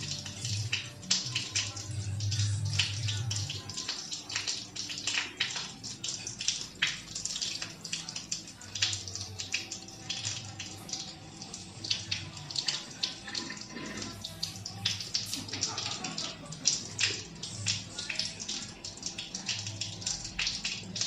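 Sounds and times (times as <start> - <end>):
rain pattering: 0.0 - 21.0.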